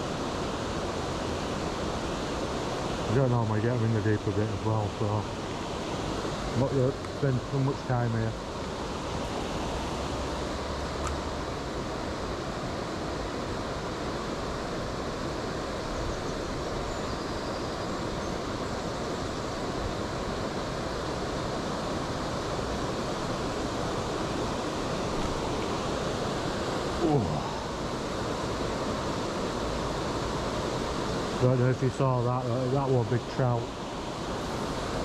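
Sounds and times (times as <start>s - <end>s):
river water pouring over weir: 0.0s - 35.0s.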